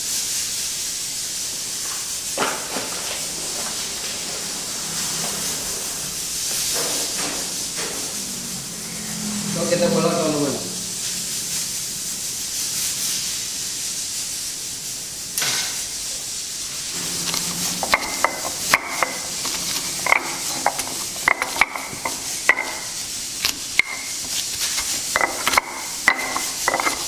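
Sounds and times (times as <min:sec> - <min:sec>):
steady hiss: 0:00.0 - 0:27.0
stone pestle pounding in mortar: 0:17.8 - 0:23.0, 0:23.7 - 0:27.0.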